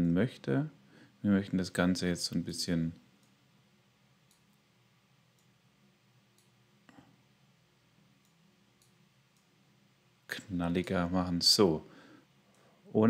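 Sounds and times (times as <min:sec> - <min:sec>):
low room hum: 0:00.0 - 0:13.0
computer mouse clicks: 0:04.2 - 0:04.6, 0:06.3 - 0:07.0, 0:08.2 - 0:09.5.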